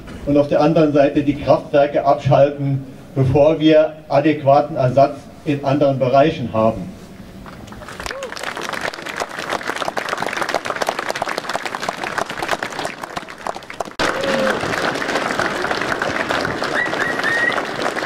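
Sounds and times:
crowd applauding: 0:07.7 - 0:18.0
whistle-like calls: 0:16.7 - 0:17.7.

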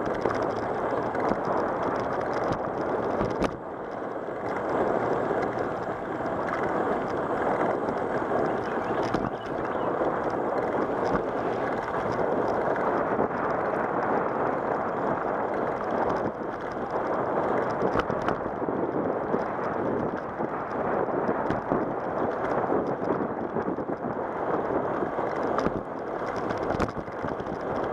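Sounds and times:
bicycle knocks and rattles: 0:00.0 - 0:27.9
bicycle tyre and wind rush: 0:00.0 - 0:27.9.

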